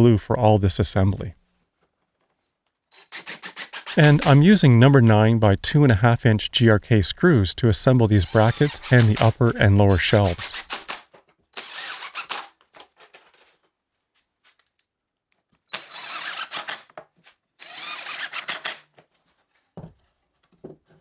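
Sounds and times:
impact driver driving screws: 2.9 - 4.2, 8.3 - 9.3, 10.5 - 13.1, 15.7 - 17.0, 17.6 - 18.9.

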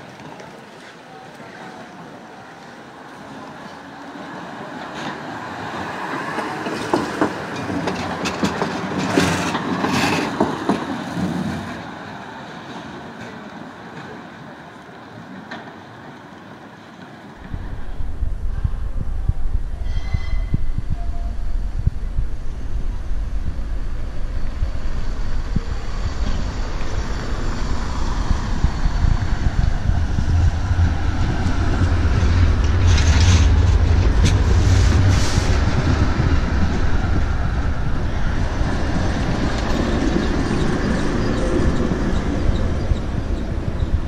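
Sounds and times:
tram rumbling: 0.0 - 44.0
sharp clicks from wheels: 6.2 - 11.6.

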